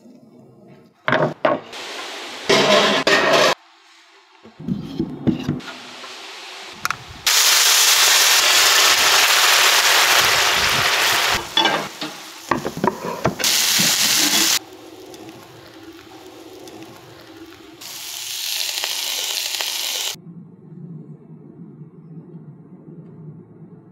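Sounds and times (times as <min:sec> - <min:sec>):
food sizzling in hot pans: 0:01.7 - 0:03.6, 0:05.6 - 0:20.2.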